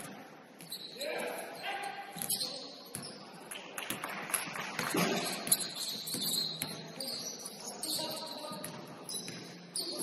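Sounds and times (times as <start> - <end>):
footwork on court: 0.0 - 10.0
basketball bouncing: 4.8 - 6.9, 8.5 - 9.6.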